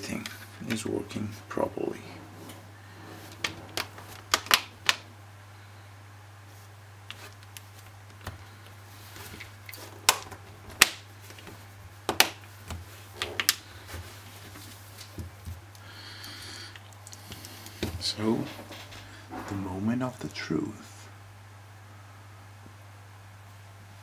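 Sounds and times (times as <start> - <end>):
plastic clips snapping into place: 3.4 - 5.0.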